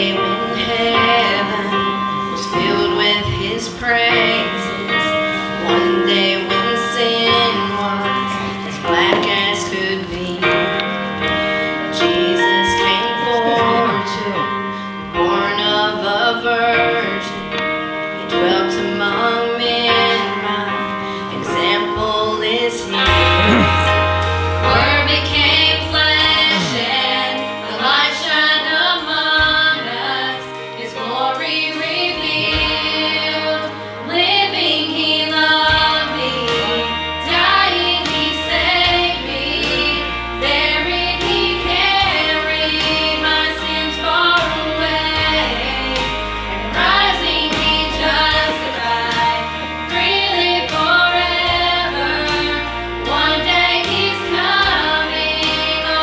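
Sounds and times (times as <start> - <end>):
women singing gospel: 0.0 - 17.6, 18.2 - 24.0, 24.6 - 56.0
instrumental accompaniment: 22.9 - 28.9
deep bass line: 23.1 - 27.0.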